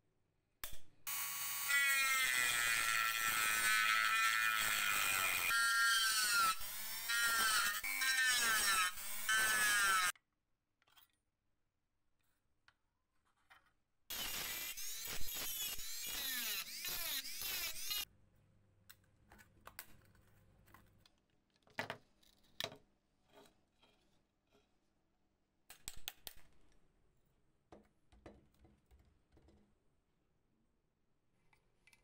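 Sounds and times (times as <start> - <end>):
rotary tool grinding metal: 1.1 - 10.1, 14.1 - 18.1.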